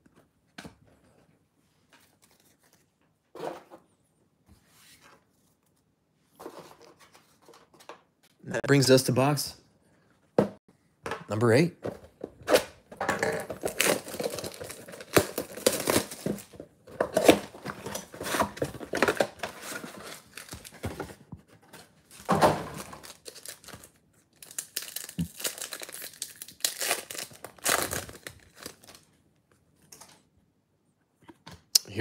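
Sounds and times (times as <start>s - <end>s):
plastic wrap crinkling and tearing: 13.2s - 20.8s, 22.2s - 29.1s
card pack rustling: 13.2s - 29.1s.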